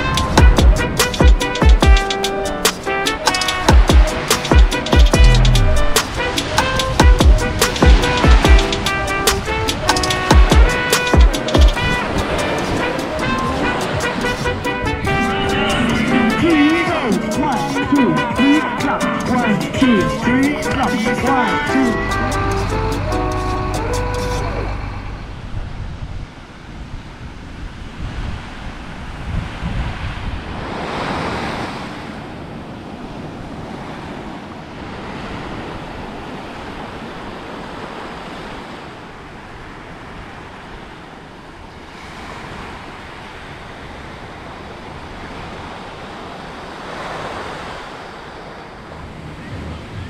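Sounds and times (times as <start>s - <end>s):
surf washing onto beach: 0.0s - 23.8s, 24.4s - 50.0s
wave breaking: 0.0s - 39.2s
wind buffeting microphone: 24.1s - 50.0s.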